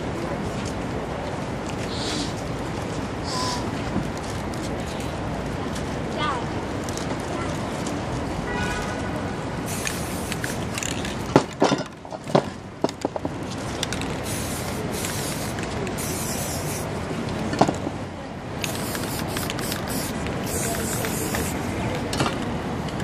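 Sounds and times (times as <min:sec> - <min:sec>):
street noise: 0:00.0 - 0:23.0
spray paint cans hissing: 0:09.6 - 0:11.3, 0:13.8 - 0:17.0, 0:18.6 - 0:21.8.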